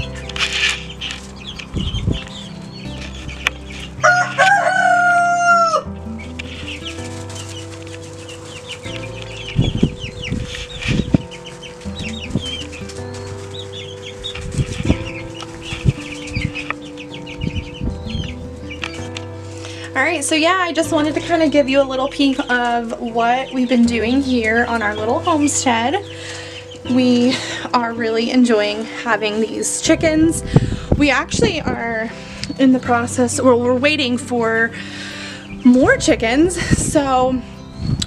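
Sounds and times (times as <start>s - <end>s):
chicks peeping and chirping: 0.0s - 38.0s
soft background music: 0.0s - 38.0s
rooster crowing: 4.0s - 5.9s.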